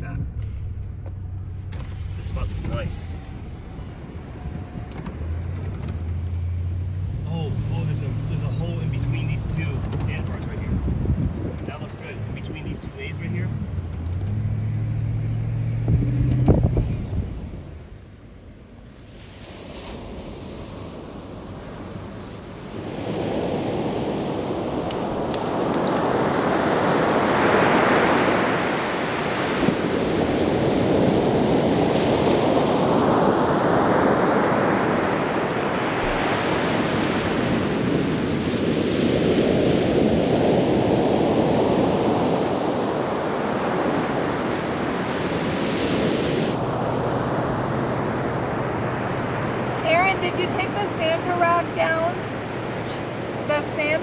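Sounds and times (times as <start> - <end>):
ocean surf breaking: 18.8 - 54.0.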